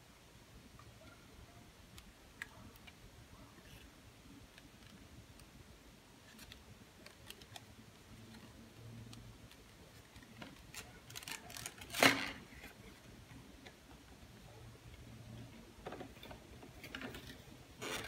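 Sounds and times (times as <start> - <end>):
loud plastic crackle: 6.2 - 12.7
plastic tray clicks and crinkles: 6.2 - 12.8.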